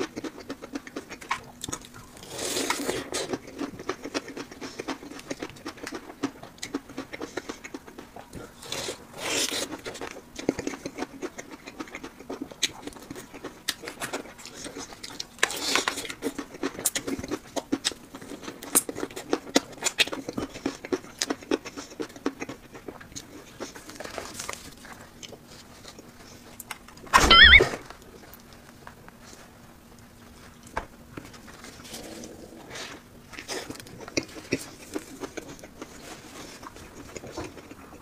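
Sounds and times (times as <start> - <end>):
chewing fried chicken: 0.0 - 38.0
short rising sound: 27.2 - 27.8.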